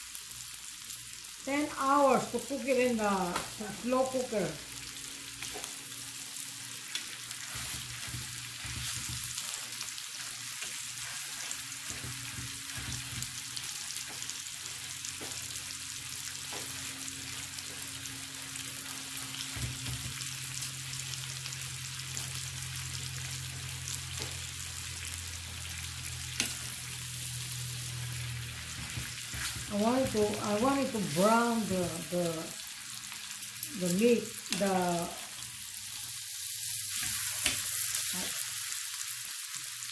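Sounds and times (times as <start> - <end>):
meat sizzling in oil: 0.0 - 39.9.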